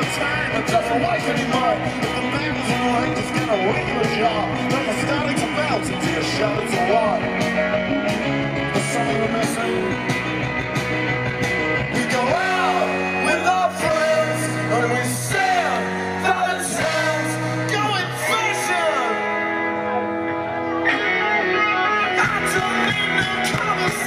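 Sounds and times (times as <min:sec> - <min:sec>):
male singer: 0:00.0 - 0:07.6, 0:08.6 - 0:10.3, 0:11.8 - 0:19.3, 0:22.0 - 0:24.0
bass guitar: 0:00.0 - 0:24.0
drums: 0:00.0 - 0:24.0
electric guitars: 0:00.0 - 0:24.0.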